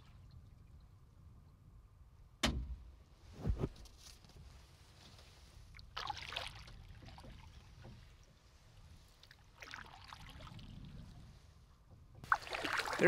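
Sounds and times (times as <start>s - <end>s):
paddle splashing in water: 12.2s - 13.0s.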